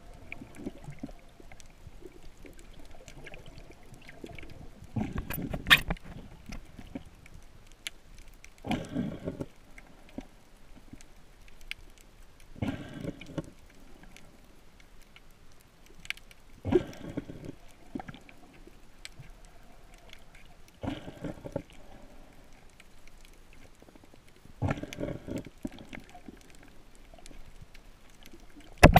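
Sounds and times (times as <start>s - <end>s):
faint clicks: 0.0s - 28.9s
gurgly underwater breathing: 8.6s - 10.2s, 12.6s - 14.0s, 16.6s - 18.6s, 20.8s - 22.7s, 24.6s - 26.7s.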